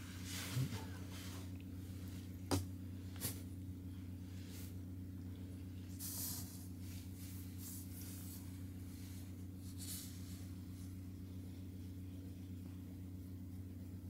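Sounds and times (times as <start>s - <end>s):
hand stroking fur: 6.0s - 11.0s.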